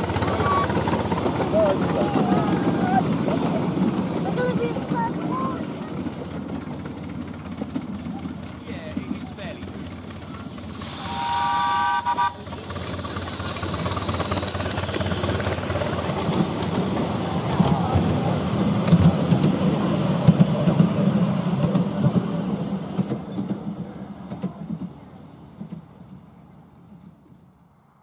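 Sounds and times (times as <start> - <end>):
miniature train rumbling on track: 0.0 - 28.0
steam locomotive whistle: 10.8 - 12.6.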